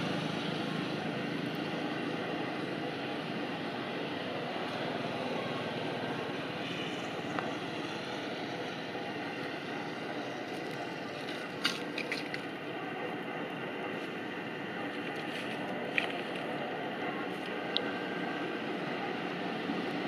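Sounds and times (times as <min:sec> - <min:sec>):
outdoor background noise: 0:00.0 - 0:20.0.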